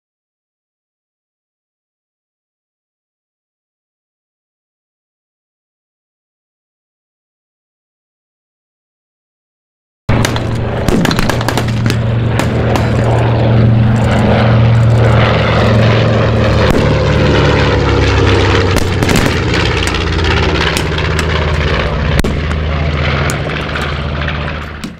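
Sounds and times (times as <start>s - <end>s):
propeller aircraft engines droning: 10.1s - 24.9s.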